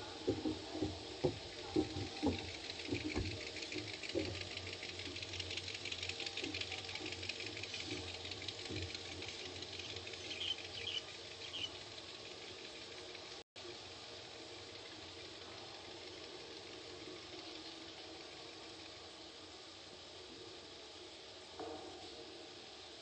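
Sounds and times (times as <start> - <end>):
motorboat engine humming: 0.0 - 23.0
fast even ticking: 0.3 - 13.4.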